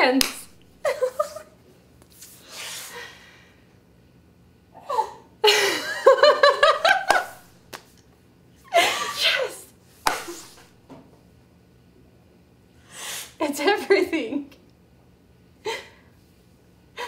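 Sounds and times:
woman laughing: 0.8s - 1.6s, 5.4s - 7.4s, 8.7s - 9.6s.

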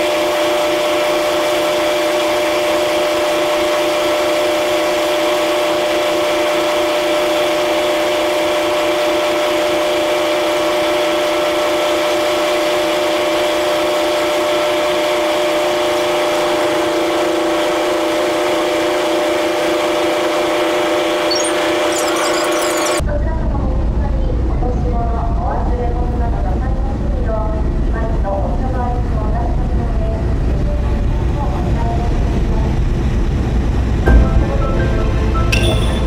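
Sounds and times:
ferry machinery drone: 19.6s - 23.0s, 32.4s - 36.0s.

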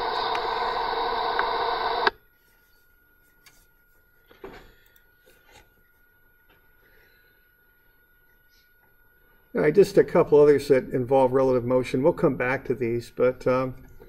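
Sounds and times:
soundtrack hiss: 0.0s - 2.1s.

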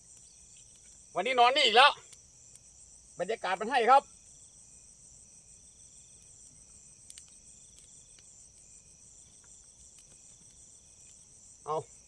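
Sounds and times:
crickets and insects chirring: 0.0s - 12.0s
faint clicks: 7.0s - 8.6s.

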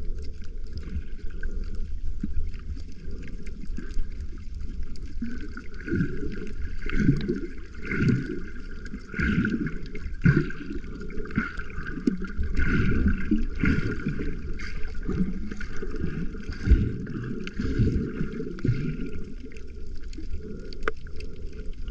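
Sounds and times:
muffled underwater sloshing: 0.0s - 21.9s.

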